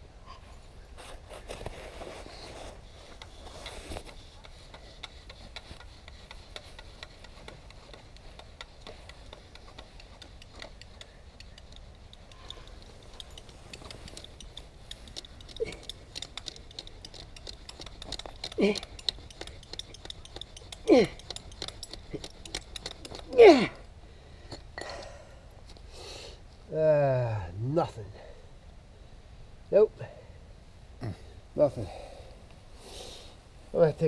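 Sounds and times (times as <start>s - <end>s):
bow drill spindle scraping: 2.1s - 23.4s
small ticks: 3.1s - 23.4s.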